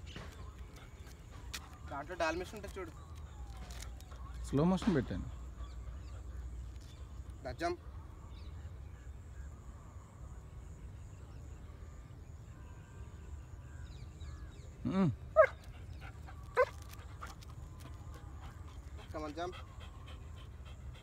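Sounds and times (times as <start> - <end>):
dog barking: 15.4 - 15.6.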